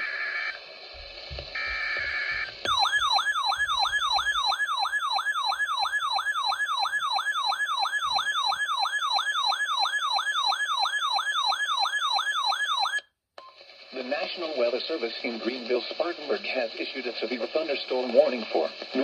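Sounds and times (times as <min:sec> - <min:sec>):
electronic alert siren sweeps: 0:01.6 - 0:13.0.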